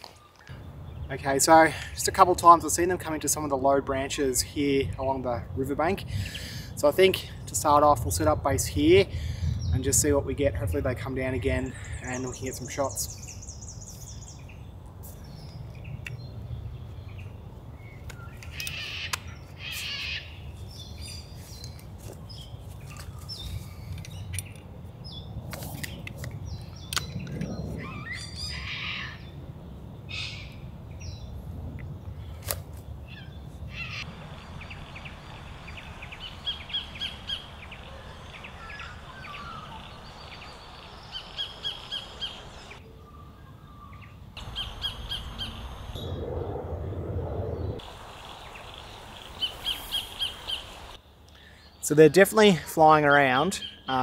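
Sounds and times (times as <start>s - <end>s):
bird chirps: 33.1s - 46.2s, 47.6s - 52.0s
kingfisher calling: 33.7s - 42.8s, 44.4s - 46.0s
low steady rumble: 44.4s - 49.6s.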